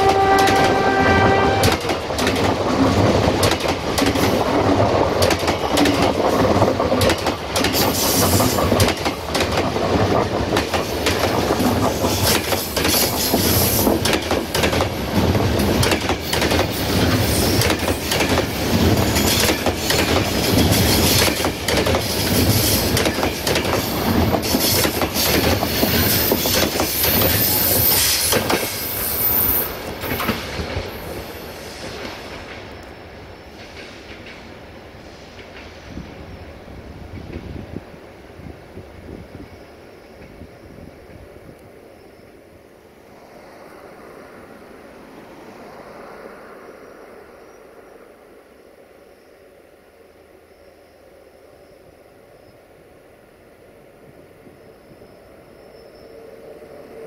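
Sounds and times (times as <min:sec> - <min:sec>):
clickety-clack over rail joints: 0:00.0 - 0:29.0, 0:29.6 - 0:36.2, 0:37.0 - 0:38.6, 0:40.0 - 0:41.7
train wheels rumbling: 0:00.0 - 0:49.2.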